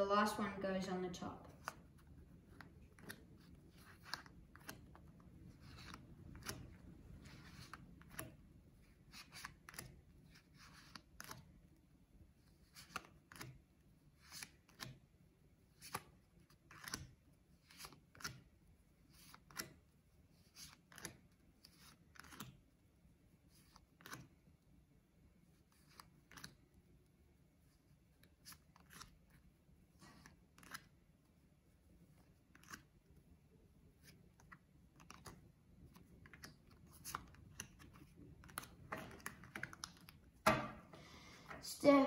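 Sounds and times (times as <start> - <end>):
playing cards dealt on table: 1.5 - 8.4, 23.6 - 24.3, 30.1 - 30.9, 32.2 - 32.9.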